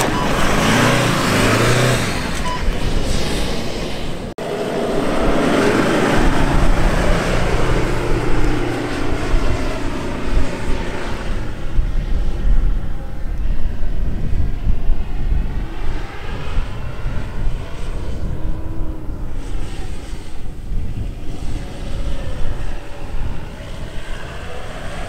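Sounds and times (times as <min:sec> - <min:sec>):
suv engine revving hard: 0:00.0 - 0:02.4.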